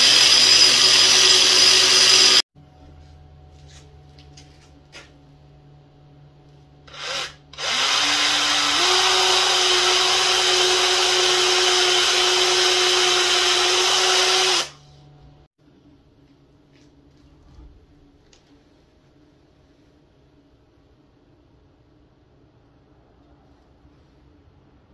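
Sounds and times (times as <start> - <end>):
electric drill boring into wood: 0.0 - 2.4, 6.9 - 14.8.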